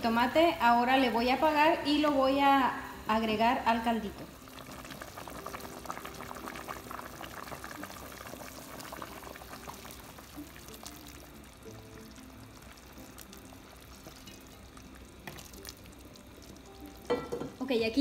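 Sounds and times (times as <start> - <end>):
soft background music: 0.0 - 18.0
sauce pouring into a pot: 4.3 - 17.4.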